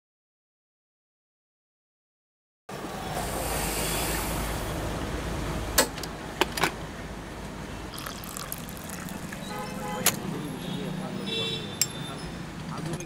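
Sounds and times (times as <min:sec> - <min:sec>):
metal kettles clanking: 0:08.0 - 0:10.3.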